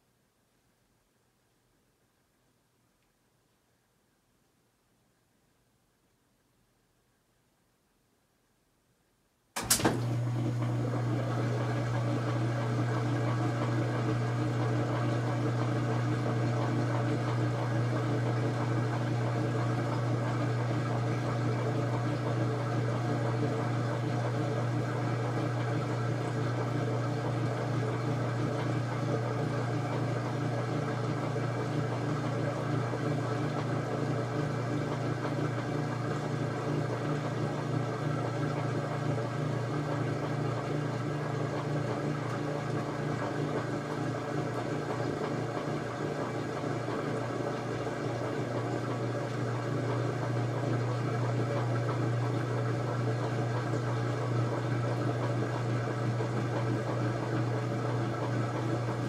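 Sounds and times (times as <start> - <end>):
washing machine click: 9.6 - 10.2
churning water: 9.6 - 59.0
washing machine running: 9.6 - 59.0.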